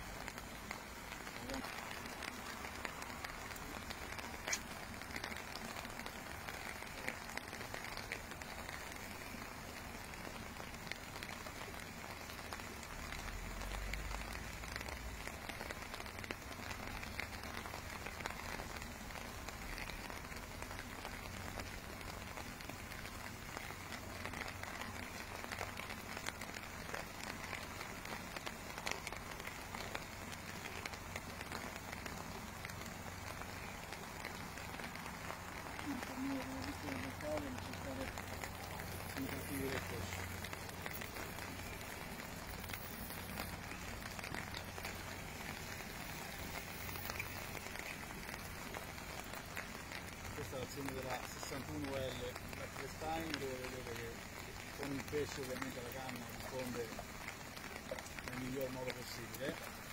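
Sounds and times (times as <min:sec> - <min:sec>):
rain on water: 0:00.0 - 0:59.9.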